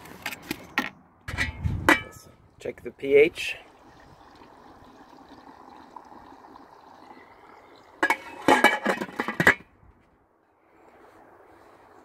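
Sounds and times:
liquid trickling: 3.1 - 8.8.

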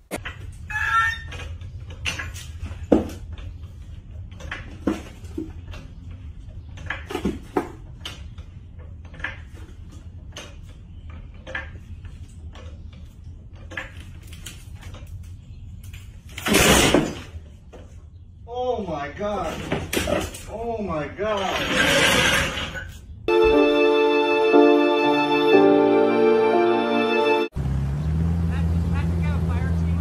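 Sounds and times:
floor jack metallic clicks and clanks: 0.0 - 17.8.

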